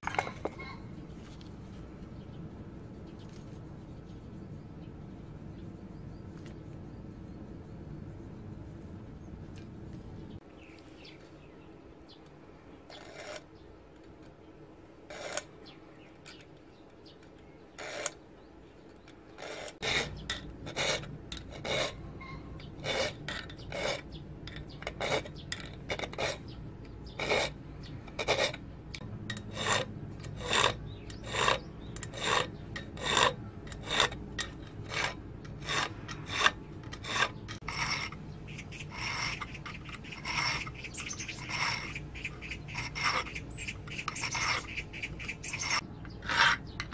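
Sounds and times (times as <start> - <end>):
file scraping steel blade: 12.9 - 13.6, 15.1 - 15.5, 17.7 - 18.2, 19.3 - 46.9.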